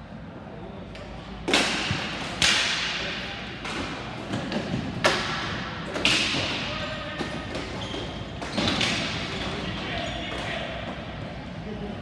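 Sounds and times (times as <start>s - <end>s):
hockey stick hitting ball: 1.5s - 3.0s.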